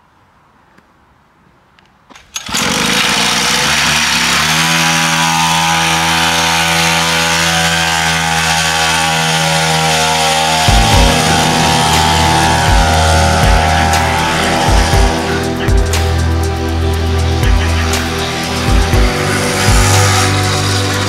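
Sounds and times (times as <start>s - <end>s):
two-stroke engine running: 2.4s - 21.0s
low thumps: 10.5s - 17.9s, 18.6s - 20.7s.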